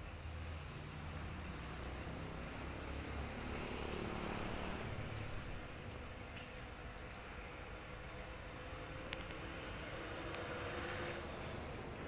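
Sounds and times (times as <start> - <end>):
insect chirps: 0.0 - 6.1.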